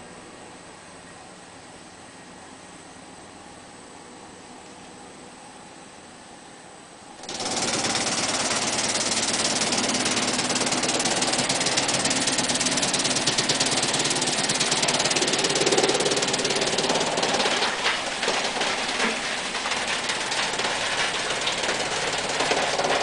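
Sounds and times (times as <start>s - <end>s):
wood chipper rattling clatter: 7.2s - 23.0s.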